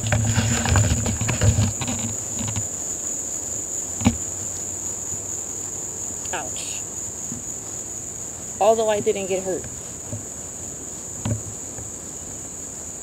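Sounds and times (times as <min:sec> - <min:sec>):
rustling footsteps: 0:00.0 - 0:02.7
insects chirping: 0:00.0 - 0:13.0.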